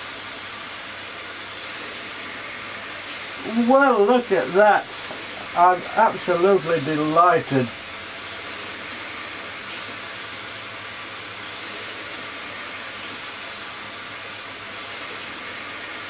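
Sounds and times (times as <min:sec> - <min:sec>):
vacuum cleaner hissing: 0:00.0 - 0:16.0.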